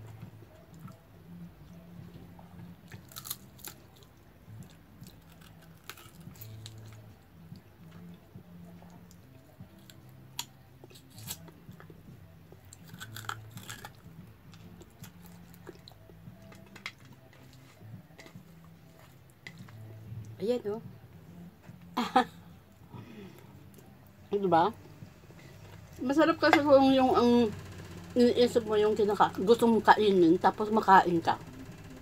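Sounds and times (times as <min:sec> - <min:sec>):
chewing crispy fried fish: 0:02.8 - 0:07.7, 0:08.9 - 0:19.9.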